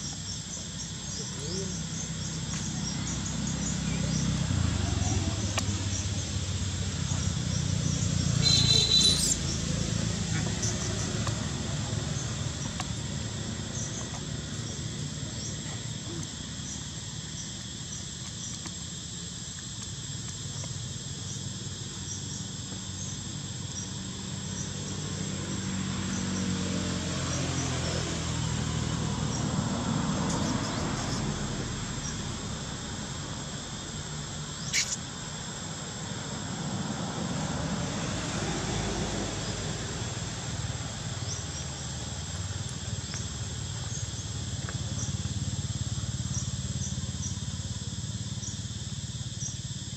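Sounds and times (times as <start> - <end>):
high-pitched insect drone: 0.0 - 49.9
sharp click: 34.8 - 35.0.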